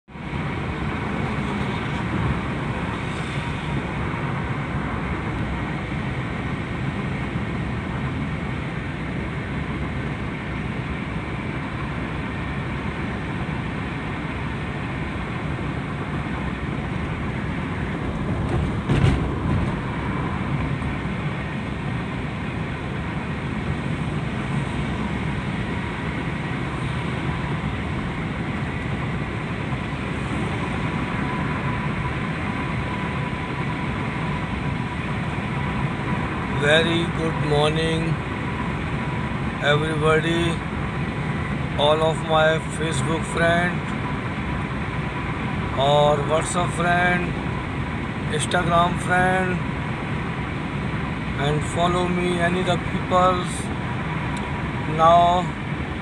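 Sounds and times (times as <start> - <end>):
road and engine noise in car: 0.0 - 56.0
brief thump: 18.5 - 19.8.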